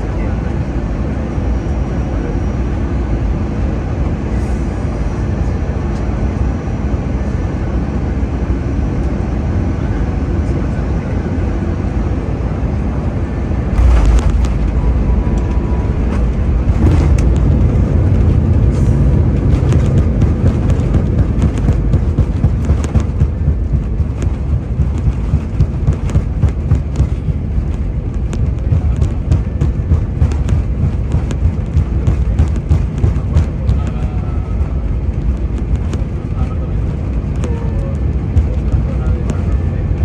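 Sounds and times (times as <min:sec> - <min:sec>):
aircraft rumbling on runway: 0:00.0 - 0:40.0
rapid rattles and knocks: 0:13.8 - 0:40.0.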